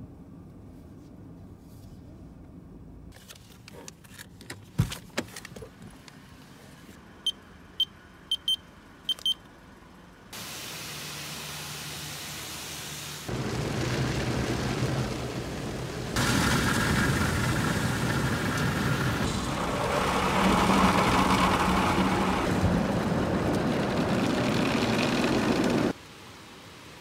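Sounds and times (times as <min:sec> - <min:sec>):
road noise: 0:00.0 - 0:27.0
car engine hum: 0:05.4 - 0:26.0
short high electronic beeps: 0:07.3 - 0:09.4.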